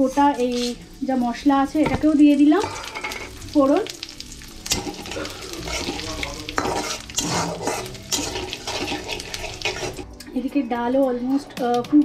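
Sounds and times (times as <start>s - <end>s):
metal spatula scraping pan: 0.0s - 0.9s, 1.8s - 3.5s, 4.6s - 10.1s
spices sizzling in hot oil: 0.0s - 12.0s.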